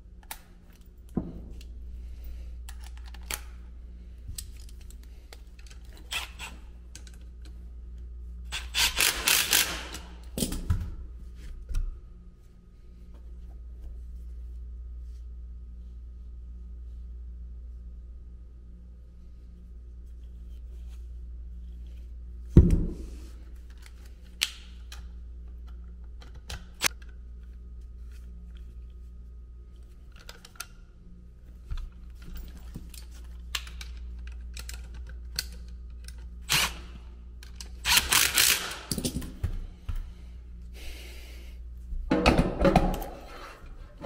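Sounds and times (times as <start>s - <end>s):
steady low hum: 0.0s - 44.0s
clicks and knocks of metal parts: 31.8s - 36.3s, 37.4s - 39.5s.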